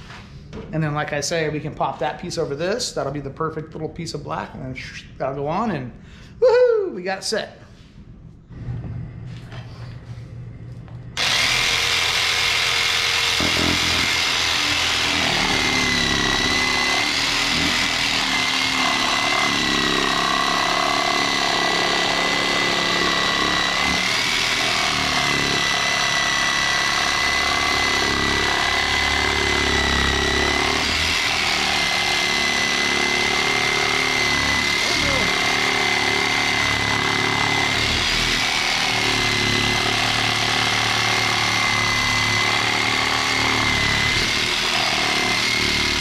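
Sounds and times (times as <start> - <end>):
jigsaw cutting with high whine: 11.2 - 46.0.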